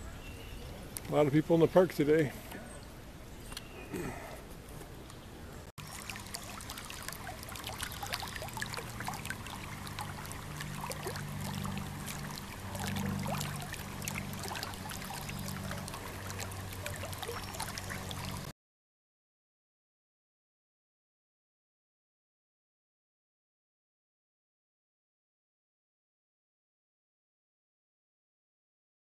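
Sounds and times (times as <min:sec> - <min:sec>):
low steady hum: 0:00.0 - 0:18.5
river water gurgling around rock: 0:05.8 - 0:18.5.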